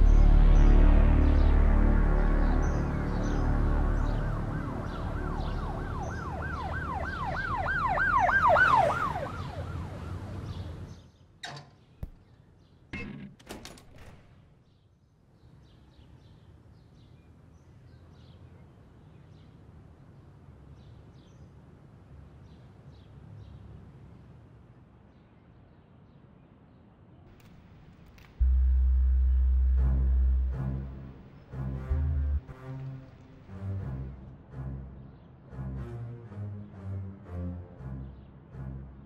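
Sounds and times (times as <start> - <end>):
faint outdoor ambience: 0.0 - 39.0
emergency siren yelping: 3.8 - 10.3
low sustained tones: 28.4 - 34.7.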